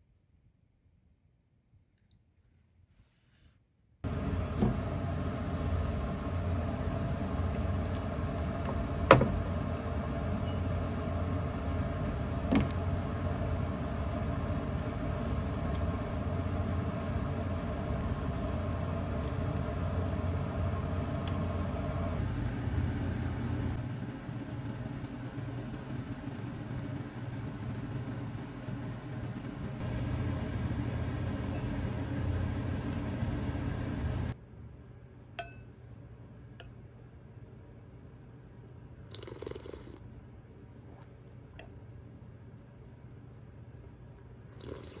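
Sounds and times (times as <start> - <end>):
kitchen extractor fan humming: 4.0 - 45.0.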